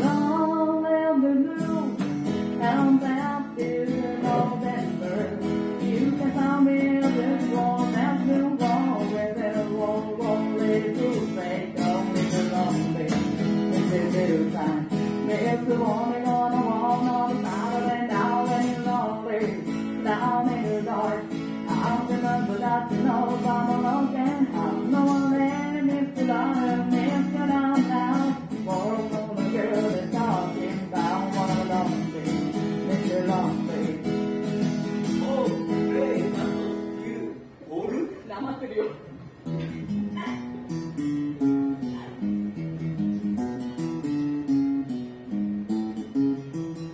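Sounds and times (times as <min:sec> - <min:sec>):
song with strummed acoustic guitar: 0:00.0 - 0:37.6, 0:39.3 - 0:46.9.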